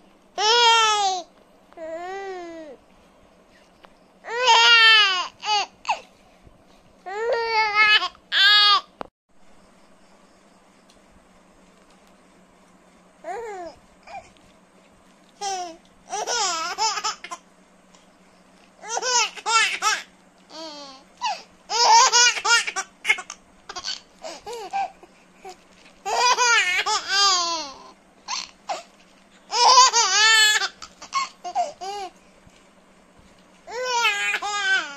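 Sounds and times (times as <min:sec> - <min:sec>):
baby giggling: 0:15.4 - 0:17.4, 0:29.5 - 0:32.1.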